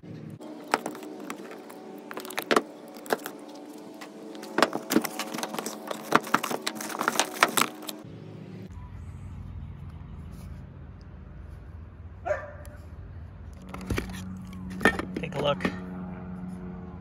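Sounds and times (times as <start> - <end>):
steady hum: 0.0 - 9.3
cardboard flaps clicking and crackling: 0.5 - 8.0.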